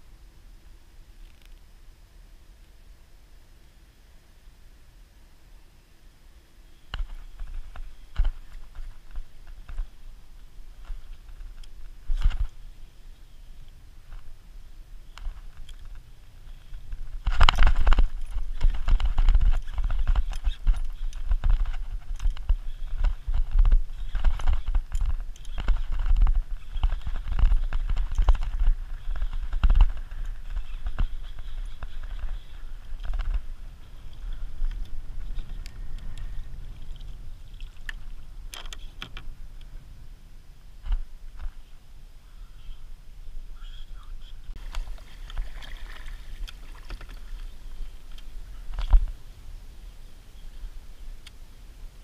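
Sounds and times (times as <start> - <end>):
low steady rumble: 0.0 - 52.0
water lapping: 44.6 - 48.7.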